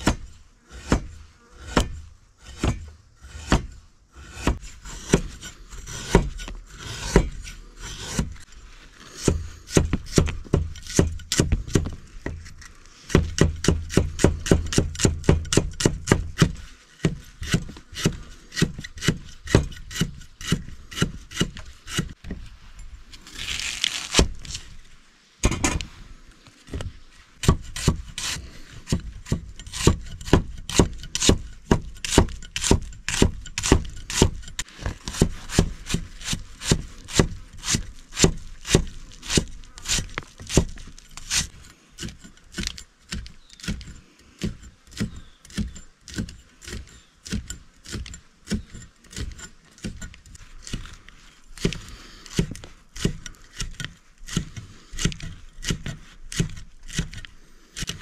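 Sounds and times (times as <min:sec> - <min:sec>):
cleaver chopping on wooden block: 0:13.1 - 0:22.2, 0:27.4 - 0:50.1, 0:51.6 - 0:57.2.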